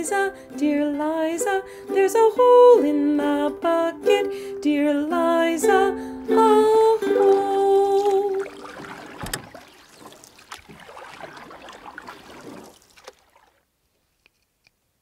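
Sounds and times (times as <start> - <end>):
handling noise rustling and knocks: 8.6 - 14.7.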